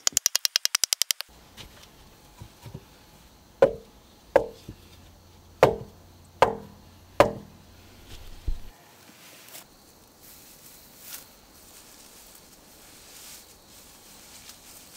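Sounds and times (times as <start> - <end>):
rattle of sharp clicks: 0.0 - 1.3
wooden mallet knocking on logs: 3.6 - 4.8, 5.6 - 7.6.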